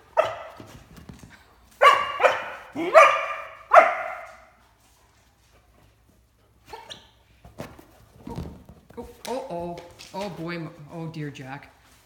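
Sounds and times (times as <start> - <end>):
dog barking: 0.1 - 0.6, 1.8 - 4.5.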